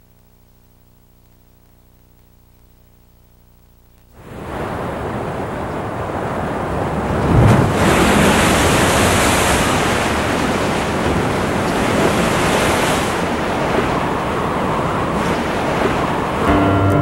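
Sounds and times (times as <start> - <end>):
foaming water rushing: 4.2 - 16.5
waves crashing on rocks: 4.2 - 16.5.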